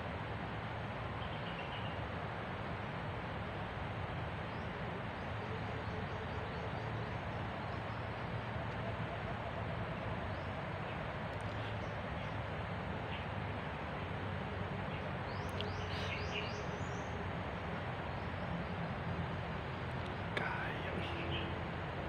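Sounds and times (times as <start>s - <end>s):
forest rushing hiss: 15.2s - 21.6s.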